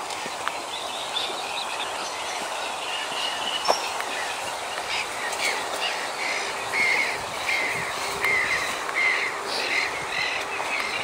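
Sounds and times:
grass and reeds rustling: 0.0s - 11.0s
bird chirps: 0.6s - 11.0s
footstep clicks: 3.4s - 5.6s.

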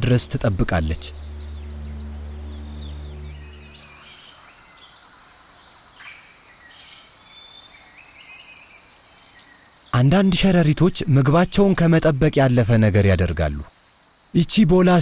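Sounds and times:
low musical drone: 0.0s - 5.2s
insects droning: 0.0s - 15.0s
bird chirps: 0.5s - 10.6s.

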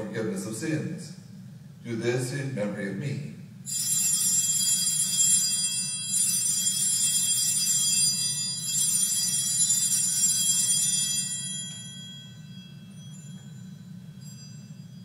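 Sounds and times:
low steady hum: 0.0s - 15.0s
altar bells ringing: 3.7s - 15.0s.

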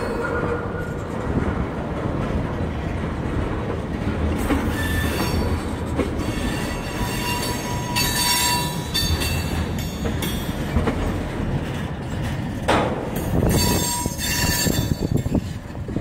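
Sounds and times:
train wheels rumbling on rails: 0.0s - 16.0s
high wheel squeals: 4.6s - 10.0s, 13.5s - 15.3s.

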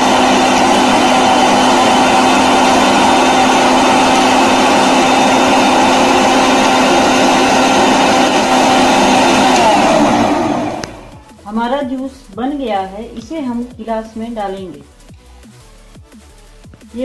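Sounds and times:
mixer grinder running: 0.0s - 11.2s.

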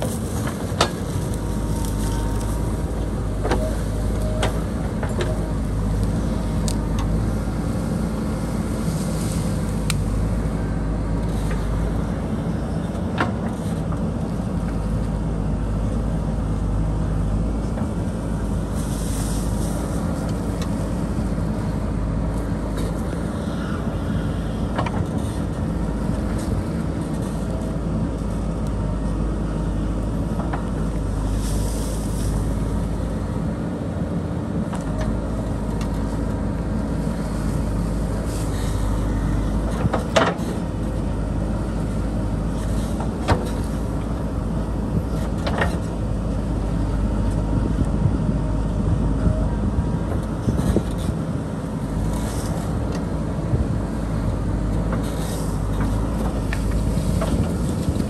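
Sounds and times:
diesel engine under load: 0.0s - 58.0s.

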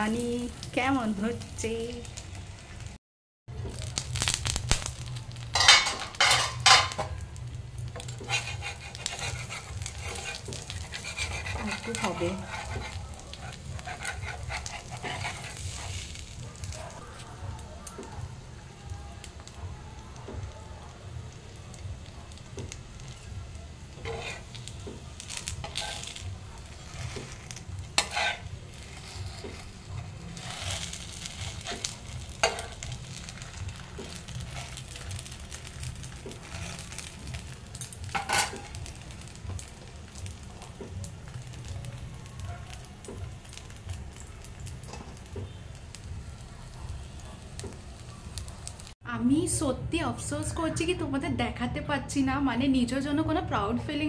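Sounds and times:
crepe sizzling in a frying pan: 0.0s - 49.0s
metal spatula scraping a pan: 5.6s - 7.2s, 8.0s - 16.2s, 23.9s - 39.7s.

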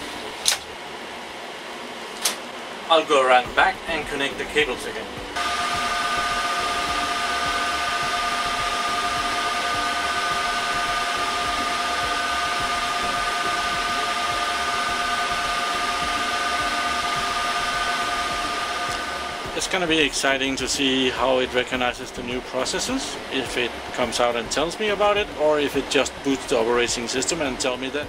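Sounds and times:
server cooling fans rushing: 0.0s - 28.0s
whining tones: 5.0s - 20.2s.

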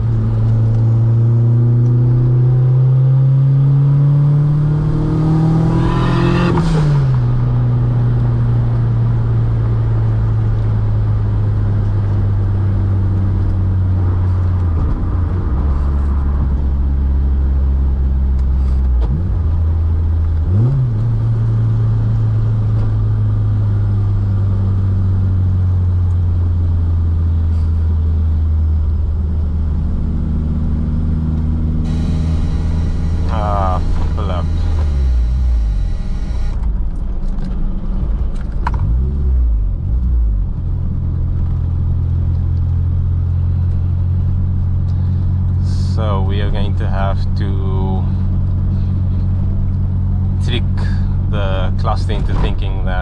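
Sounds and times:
car engine revving: 0.0s - 8.6s, 30.4s - 36.7s.

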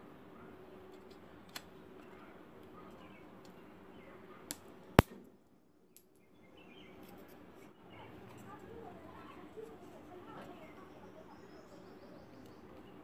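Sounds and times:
background noise: 0.0s - 13.0s
knife cracking dry sticks: 1.0s - 1.7s.

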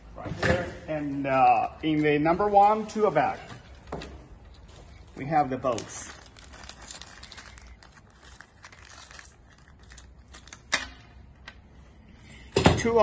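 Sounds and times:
plastic bag crinkling: 4.9s - 10.7s.

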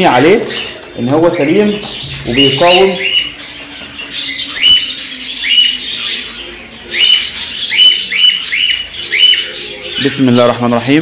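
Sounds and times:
cockatiel harsh calls: 1.8s - 10.1s.

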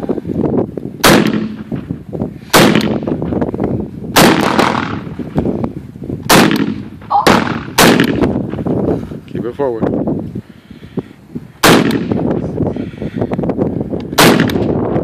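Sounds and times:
pistol gunshots: 1.0s - 1.8s, 2.5s - 3.1s, 4.1s - 5.1s, 6.3s - 8.3s, 11.6s - 12.2s, 14.1s - 14.8s.

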